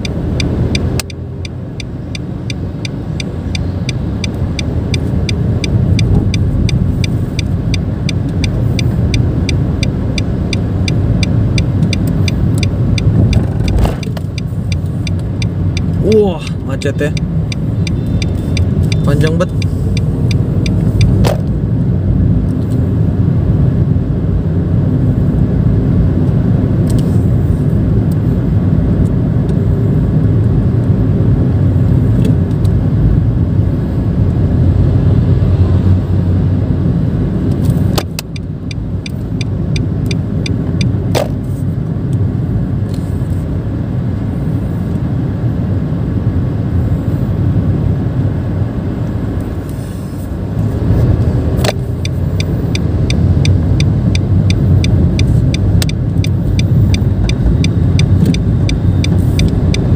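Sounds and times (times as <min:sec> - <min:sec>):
sharp clicks: 0:00.0 - 0:16.0, 0:51.6 - 0:59.9
car engine and road noise: 0:00.0 - 0:59.9.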